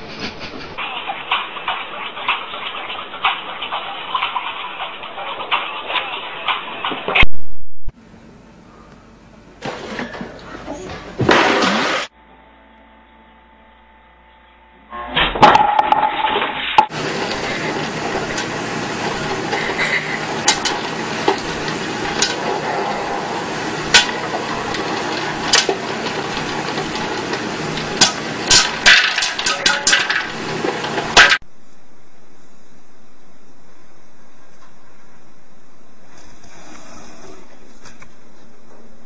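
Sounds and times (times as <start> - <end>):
popcorn popping: 15.4 - 31.5
hot oil sizzling: 16.8 - 31.5.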